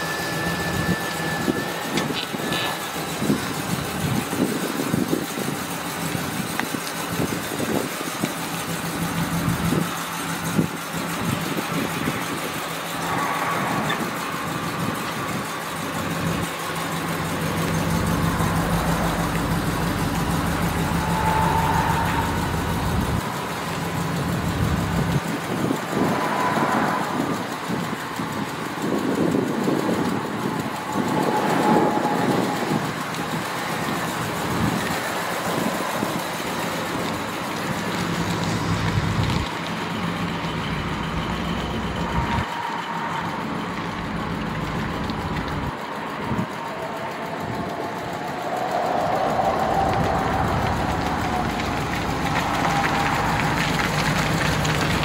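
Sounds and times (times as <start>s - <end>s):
truck engine idling: 0.0s - 55.0s.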